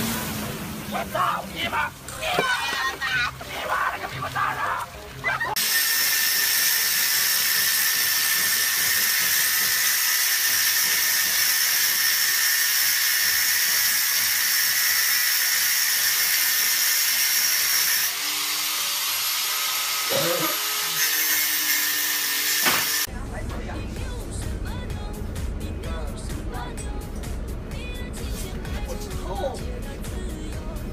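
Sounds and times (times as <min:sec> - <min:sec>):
angle grinder grinding metal: 0:05.6 - 0:23.1.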